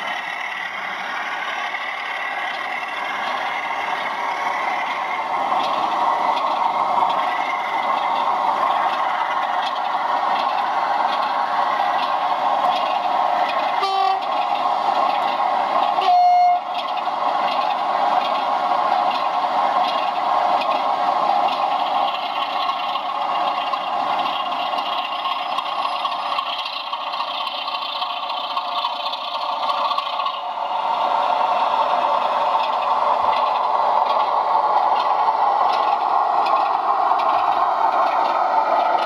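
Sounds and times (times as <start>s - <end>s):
model train running: 0.0s - 39.0s
train horn blasts: 13.8s - 14.3s, 16.0s - 16.7s.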